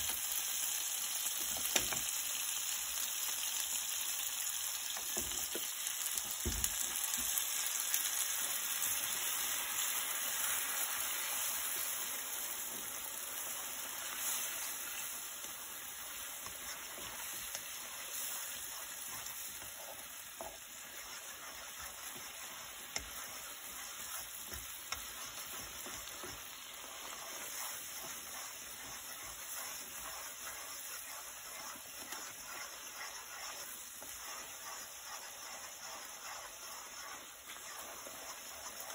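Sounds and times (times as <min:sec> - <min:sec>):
cheese sauce sizzling in a pan: 0:00.0 - 0:38.9
chopsticks stirring: 0:08.5 - 0:38.9.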